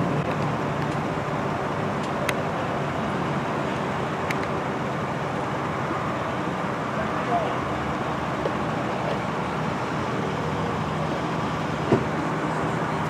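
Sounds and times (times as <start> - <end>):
road traffic noise: 0.0 - 13.0.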